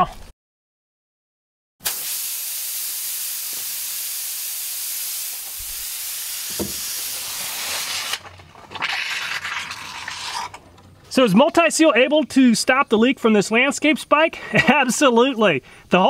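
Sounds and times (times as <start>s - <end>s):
air hissing out of a tire: 1.8s - 8.2s.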